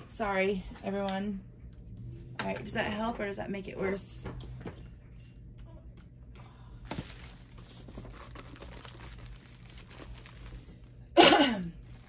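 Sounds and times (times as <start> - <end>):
plastic wrap crinkling: 6.9 - 11.0, 11.8 - 12.0.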